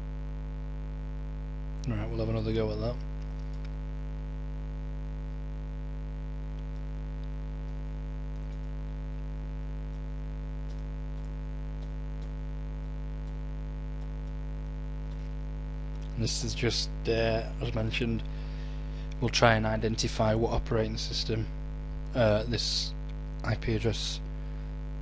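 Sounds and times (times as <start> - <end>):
electrical mains hum: 0.0 - 25.0
faint ticks: 3.0 - 3.8, 6.5 - 9.0, 9.8 - 12.5, 13.2 - 16.2.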